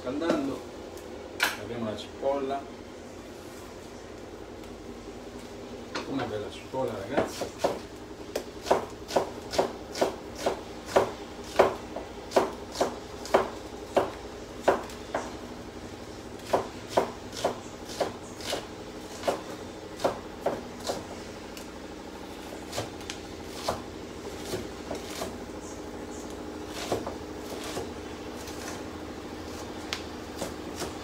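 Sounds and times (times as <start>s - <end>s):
steady low hum: 0.0s - 31.0s
knife chopping on cutting board: 7.1s - 15.4s, 16.4s - 21.1s, 22.5s - 25.4s, 26.7s - 28.8s, 29.5s - 31.0s.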